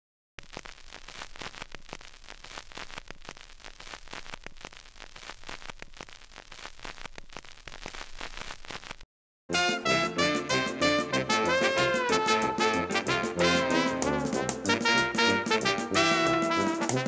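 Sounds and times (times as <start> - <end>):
crackling static: 0.4 - 9.1.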